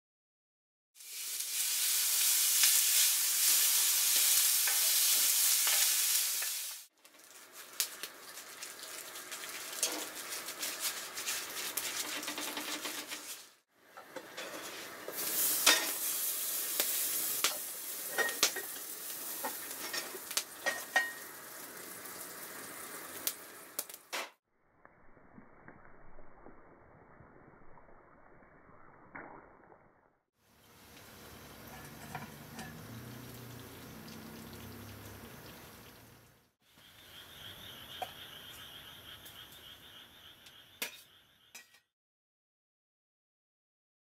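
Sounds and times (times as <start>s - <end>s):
fire crackles and pops: 1.0s - 12.6s, 15.1s - 24.2s
food sizzling in pans: 1.0s - 24.4s, 30.4s - 39.5s.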